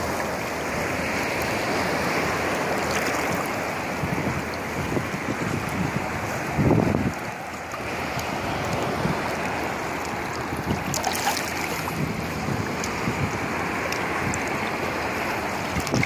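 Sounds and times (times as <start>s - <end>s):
sea water lapping: 0.0s - 16.0s
wind noise on microphone: 0.0s - 16.0s
small splashes: 2.5s - 3.8s, 7.1s - 16.0s.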